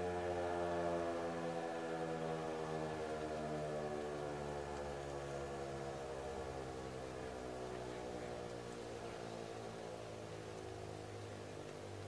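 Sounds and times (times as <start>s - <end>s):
warning siren winding down: 0.0s - 7.8s.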